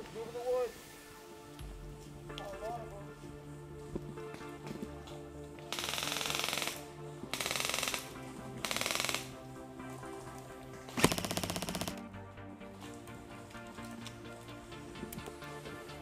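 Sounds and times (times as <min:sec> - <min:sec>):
airsoft gun full-auto bursts: 0:05.7 - 0:09.4, 0:11.0 - 0:12.0.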